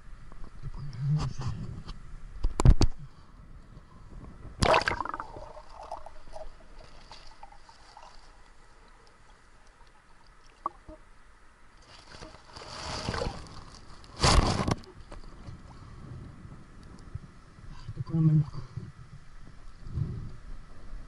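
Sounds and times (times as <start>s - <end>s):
muffled underwater water noise: 0.0s - 21.0s
loud water splash: 4.6s - 6.4s
water rushing: 4.6s - 10.9s.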